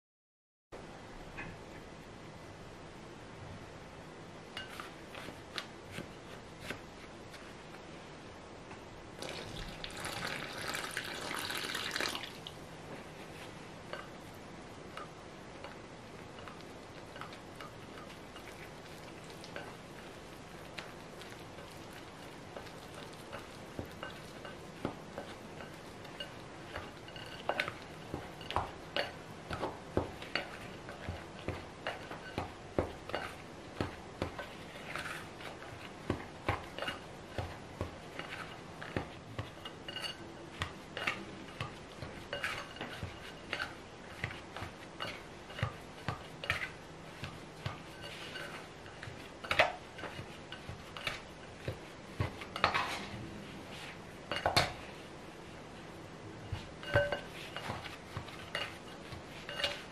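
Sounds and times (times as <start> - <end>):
scraper scraping glass bowl: 58.4 - 59.9.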